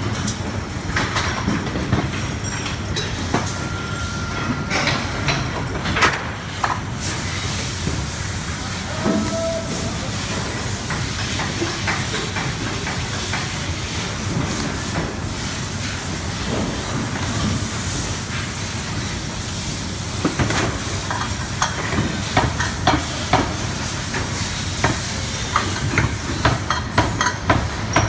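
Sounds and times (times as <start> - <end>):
factory machine noise with hiss: 0.0 - 28.0.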